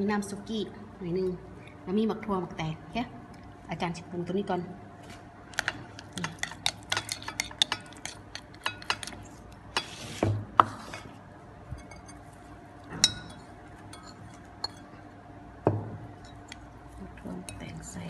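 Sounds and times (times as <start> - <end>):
fork clinking on ceramic bowl: 5.6 - 9.2, 13.0 - 14.9.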